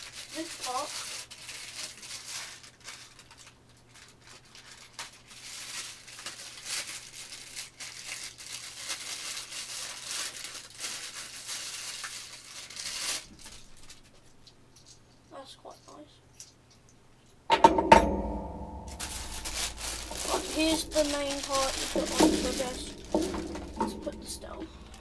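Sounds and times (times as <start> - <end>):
plastic packaging crinkling: 0.0 - 15.2, 18.8 - 25.0.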